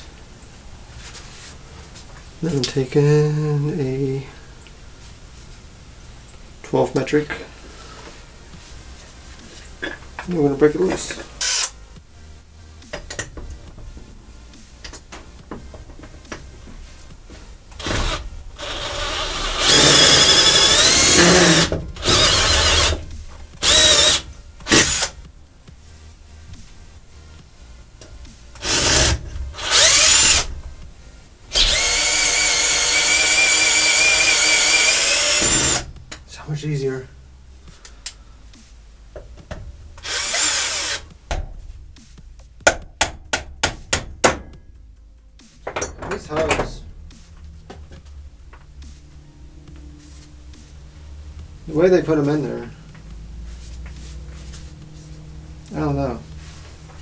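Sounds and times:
impact driver whining: 0:17.8 - 0:25.2, 0:28.6 - 0:30.5, 0:31.5 - 0:35.9, 0:40.0 - 0:41.1.

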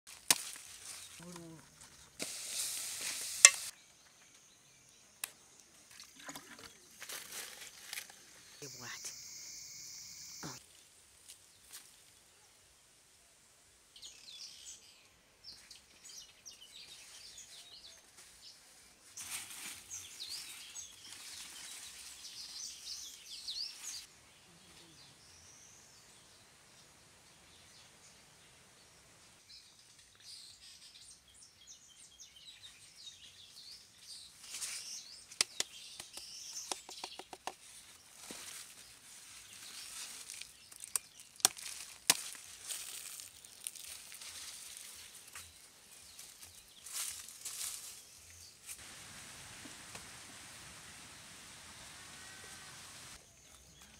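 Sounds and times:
birds chirping: 0:08.2 - 0:10.6.

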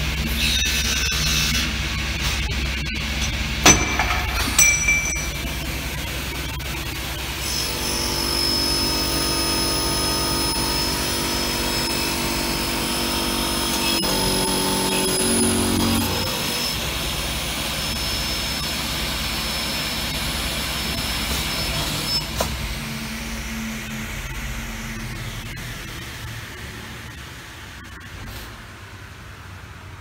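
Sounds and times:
high spindle whine: 0:00.0 - 0:21.2
drilling machine motor hum: 0:07.4 - 0:21.3.

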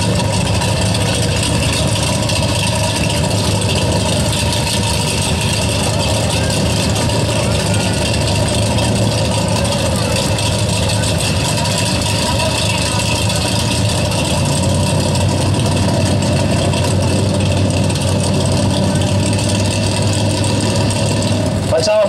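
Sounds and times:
drag car engines idling: 0:00.0 - 0:22.0.

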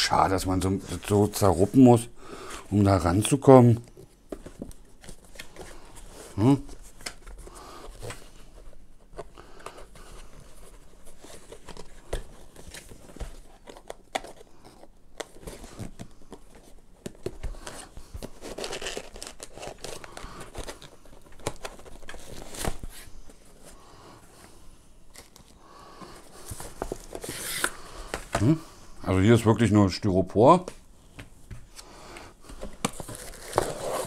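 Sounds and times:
cardboard rustling and scraping: 0:04.0 - 0:28.5, 0:32.5 - 0:34.0
box flaps folding: 0:09.2 - 0:23.7, 0:26.1 - 0:28.5, 0:32.5 - 0:34.0.

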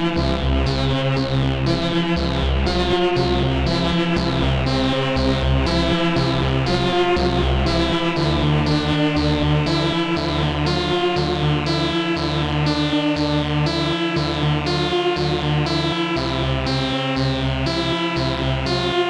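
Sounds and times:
analog synthesizer sequence: 0:00.0 - 0:19.0.

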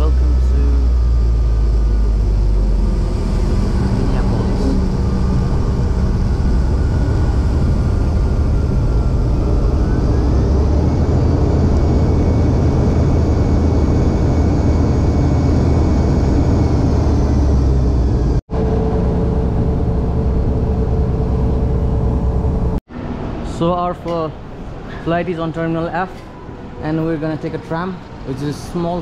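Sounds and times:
airliner cabin rumble: 0:00.0 - 0:22.8
jet engine whine: 0:00.0 - 0:29.0
steady hum: 0:00.0 - 0:29.0.

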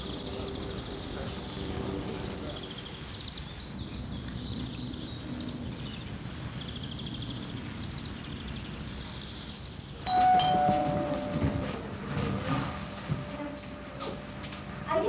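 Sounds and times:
small birds chirping: 0:00.0 - 0:10.0
loud sound with held tone: 0:10.1 - 0:15.0.

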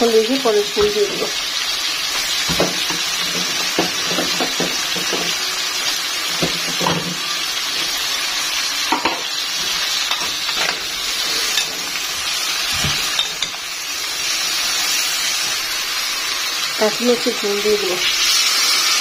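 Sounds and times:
vegetables sizzling in a frying pan: 0:00.0 - 0:19.0
spatula knocking and scraping a pan: 0:02.1 - 0:05.4, 0:06.3 - 0:07.2.

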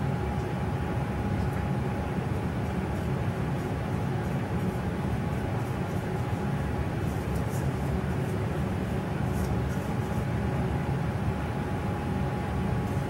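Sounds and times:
low machine hum and rumble: 0:00.0 - 0:13.0.

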